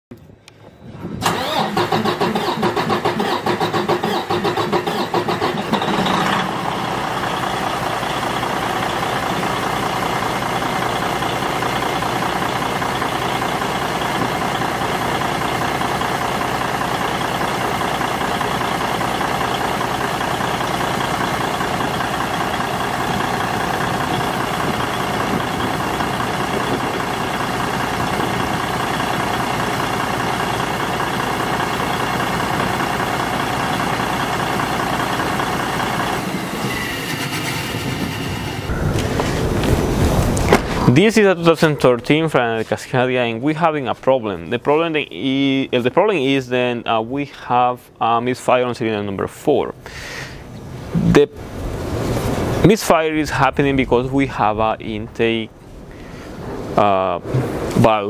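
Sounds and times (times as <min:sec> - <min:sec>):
diesel engine starting and idling: 0:01.0 - 0:43.0.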